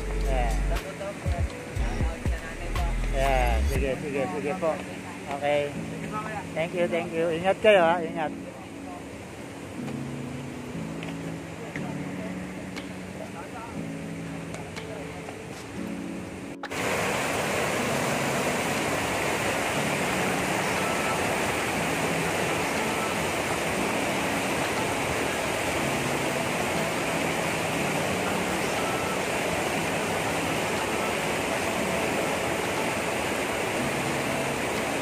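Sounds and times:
river water rushing over weir: 0.0 - 35.0.

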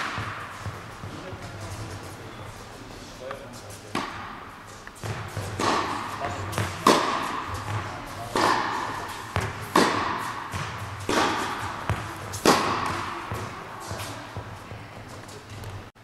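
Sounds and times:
tennis ball hit by racket: 0.0 - 1.6, 3.9 - 14.6
tennis ball bouncing: 0.0 - 1.7, 3.3 - 15.8.

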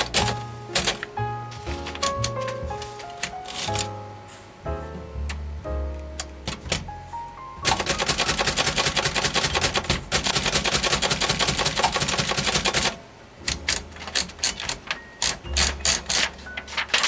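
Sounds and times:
manual typewriter typing: 0.0 - 1.1, 1.8 - 3.9, 7.6 - 17.0.

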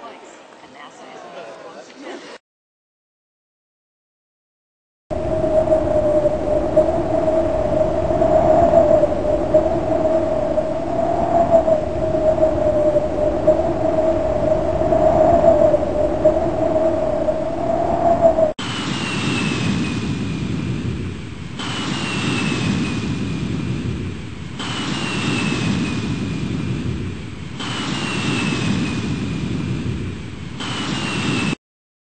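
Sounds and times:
jet engine whine: 5.1 - 31.6
wavering droning tone: 5.2 - 18.5.

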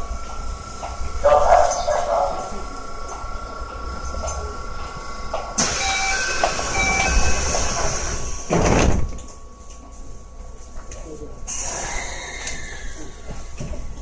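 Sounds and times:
train door hiss: 5.6 - 9.1, 11.5 - 13.5
train doors banging shut: 5.6 - 9.3.

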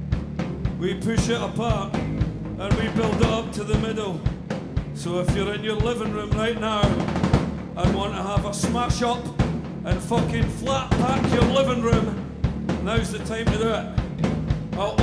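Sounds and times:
drum kit: 0.0 - 15.0
electric guitars and bass: 0.0 - 15.0
man singing: 0.8 - 2.0, 2.6 - 4.4, 5.0 - 7.1, 7.8 - 12.2, 12.8 - 14.0, 14.8 - 15.0.

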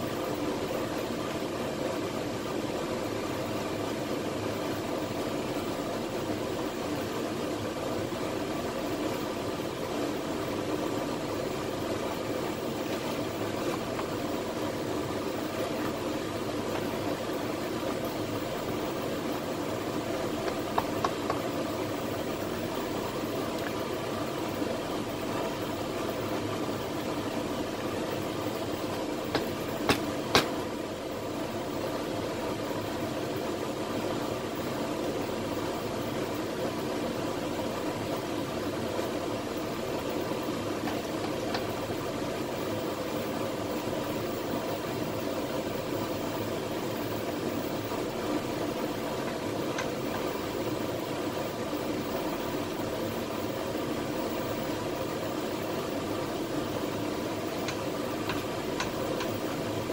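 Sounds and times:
mechanical hum with hiss: 0.0 - 59.9
faint clicks: 57.6 - 59.4.

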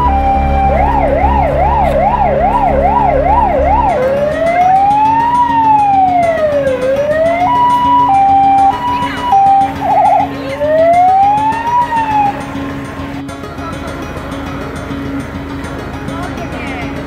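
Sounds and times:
low rumble: 0.0 - 6.0
electronic siren: 0.0 - 12.7.

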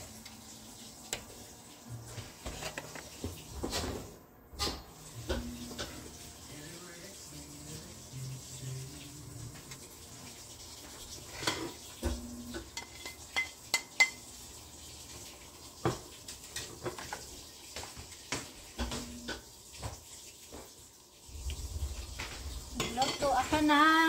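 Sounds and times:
utensils clinking against saucepan: 11.2 - 14.3, 22.8 - 23.8.

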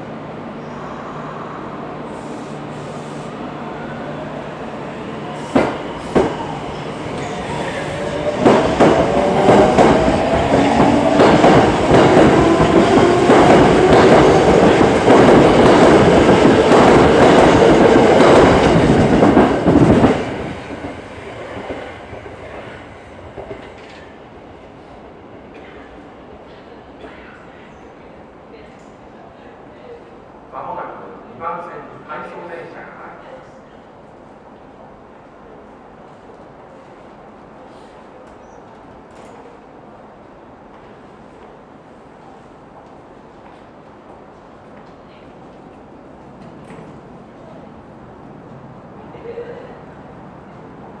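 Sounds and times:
train whine: 0.0 - 25.6.

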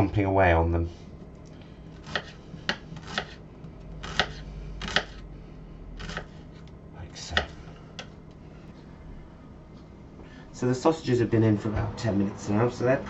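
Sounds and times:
knife chopping on wooden board: 2.0 - 5.2, 6.0 - 6.6, 7.3 - 8.1.

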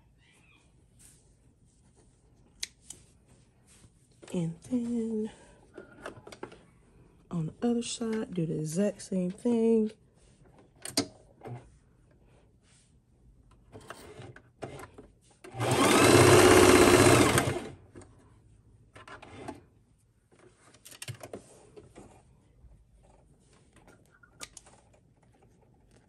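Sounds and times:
sewing machine running: 15.5 - 17.8.

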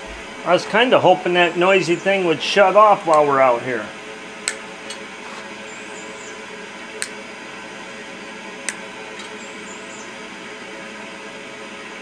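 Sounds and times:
exhaust blower whirring: 0.0 - 12.0.

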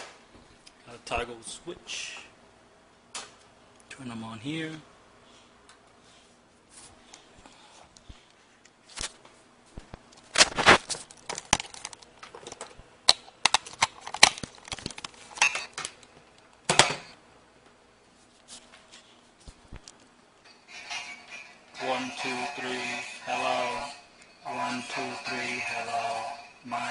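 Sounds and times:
handling knocks and clicks: 9.8 - 17.1.

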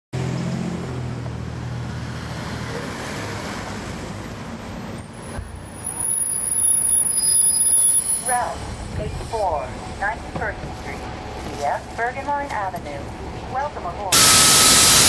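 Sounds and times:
bus diesel engine drone: 0.2 - 15.0
thin high whine: 5.8 - 8.7, 14.2 - 15.0.

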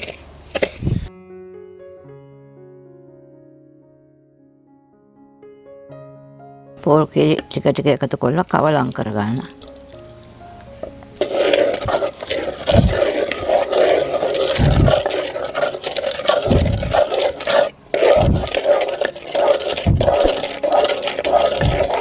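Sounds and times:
spoon scraping batter in clay pot: 0.0 - 1.1, 11.2 - 22.0.

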